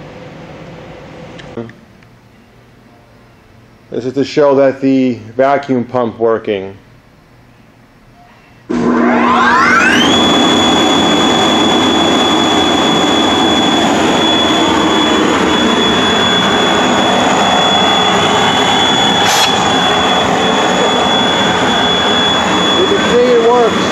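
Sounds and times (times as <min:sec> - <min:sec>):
blower rushing air with high whine: 0:08.7 - 0:23.9.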